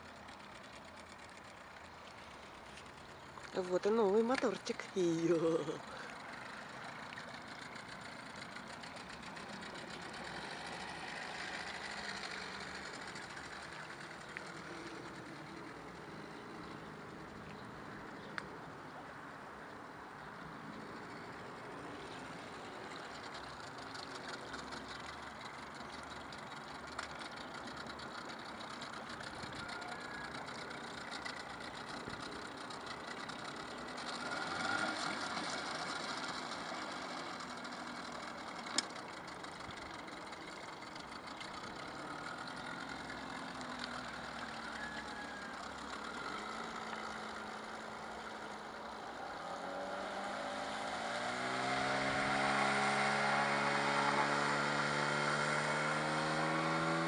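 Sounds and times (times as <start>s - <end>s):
outboard motor running: 0.0s - 57.0s.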